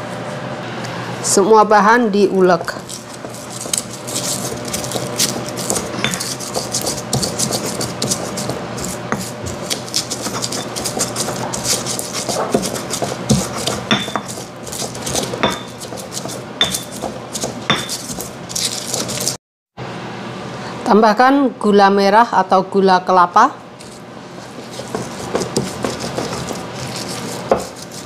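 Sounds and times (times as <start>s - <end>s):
pestle pounding and grinding in mortar: 2.4s - 19.4s, 23.8s - 28.0s.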